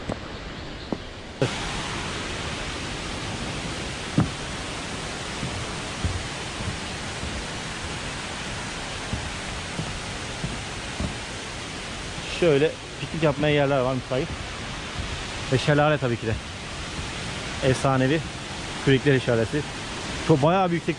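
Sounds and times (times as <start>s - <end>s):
waterfall roaring: 1.3s - 20.9s
soft thumps: 3.5s - 12.3s.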